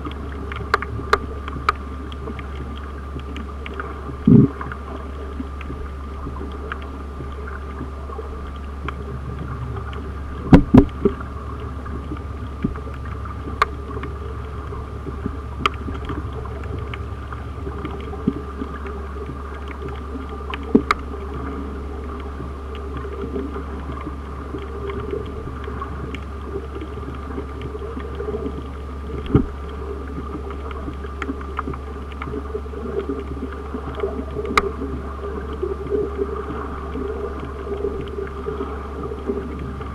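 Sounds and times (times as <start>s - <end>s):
sharp clicks and pops: 0.0s - 4.8s, 5.5s - 11.2s, 11.9s - 21.5s, 23.9s - 32.4s
faint steady whine: 0.0s - 39.9s
low underwater hum: 0.0s - 39.9s.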